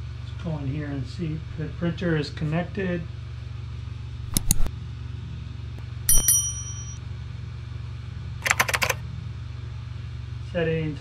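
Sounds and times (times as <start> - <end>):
quick clicks: 4.3 - 4.7, 8.4 - 9.0
bright bell ding: 6.1 - 7.0.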